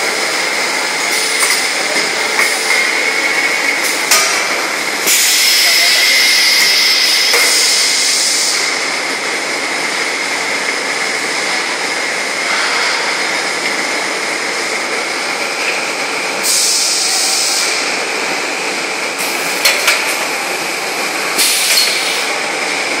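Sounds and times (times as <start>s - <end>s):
high machine whine: 0.0s - 13.2s
compressed air hissing: 1.0s - 8.8s, 16.4s - 17.8s, 21.2s - 22.4s.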